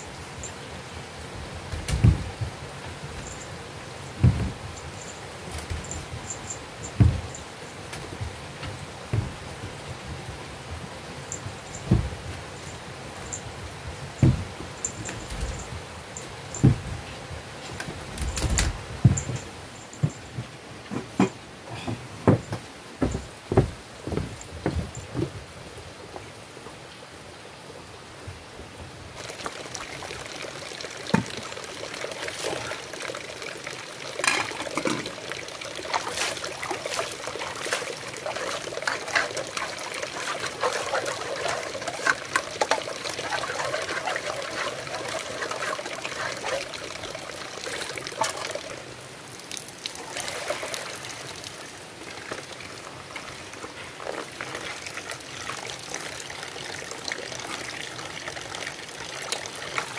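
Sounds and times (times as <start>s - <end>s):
water splashing: 29.2s - 59.9s
water trickling into plastic basin: 29.2s - 59.9s
metal pot clattering: 34.2s - 35.1s.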